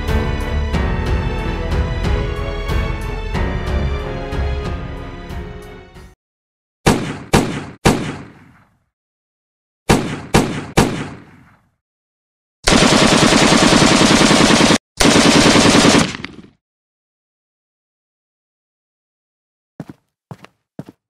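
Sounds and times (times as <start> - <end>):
music: 0.0 - 6.2
pistol shots: 6.8 - 8.8, 9.9 - 11.6
automatic gunfire: 9.9 - 11.3, 12.6 - 16.6.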